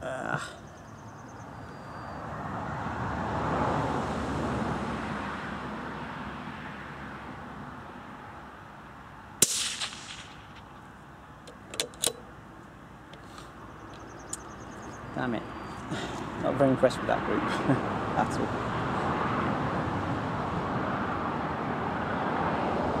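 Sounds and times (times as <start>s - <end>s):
suppressed rifle shot: 9.4s - 10.8s
metallic clicks: 11.4s - 12.3s.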